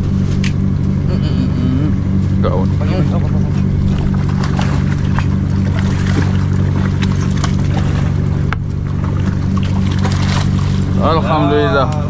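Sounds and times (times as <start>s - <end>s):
boat motor droning: 0.0s - 12.0s
fish thrashing and splashing: 3.6s - 11.1s.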